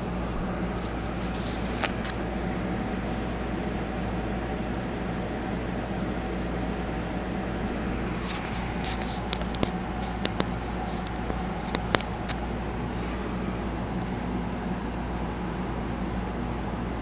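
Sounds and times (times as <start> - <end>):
aquarium pumps humming: 0.0 - 17.0
sharp clicks: 8.3 - 12.4.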